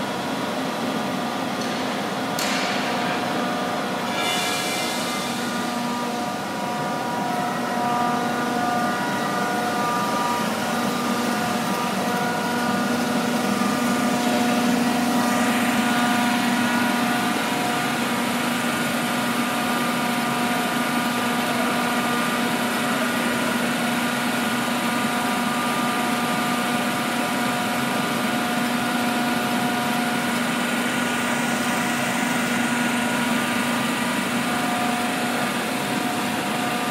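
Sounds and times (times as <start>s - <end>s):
lathe running: 0.0s - 36.9s.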